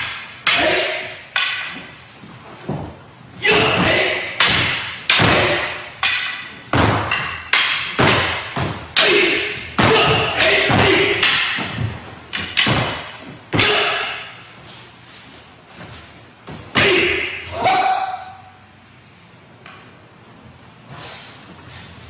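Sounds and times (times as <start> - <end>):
wooden swords clacking: 0.0 - 15.0
people shouting: 0.4 - 1.2, 3.4 - 5.9, 8.9 - 11.5, 13.5 - 14.2, 16.8 - 18.5.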